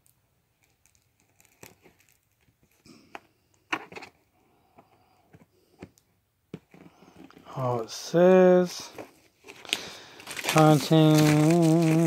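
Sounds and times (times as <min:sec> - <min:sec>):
rustling shrink-wrapped box: 0:08.9 - 0:12.0.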